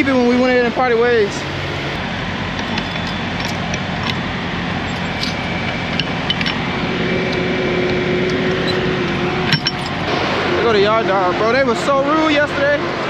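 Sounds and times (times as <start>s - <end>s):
engine hum: 0.0s - 13.0s.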